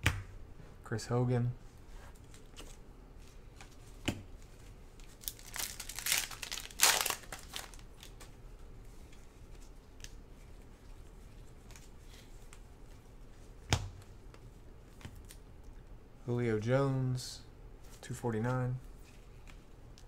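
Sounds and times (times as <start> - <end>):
cards being handled: 2.1 - 15.4, 17.9 - 20.0
foil pack tearing and crinkling: 5.0 - 8.2.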